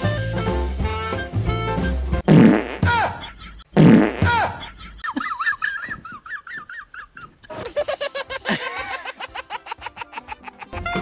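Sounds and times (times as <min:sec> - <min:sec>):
fart sound effect: 0:02.2 - 0:02.9, 0:03.8 - 0:04.4
person laughing: 0:02.9 - 0:11.0
rapid giggles: 0:04.6 - 0:11.0.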